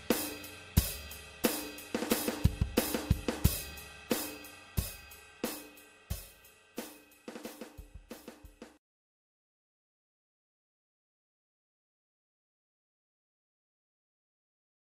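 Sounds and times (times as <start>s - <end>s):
drum kit beat: 0.0s - 8.8s.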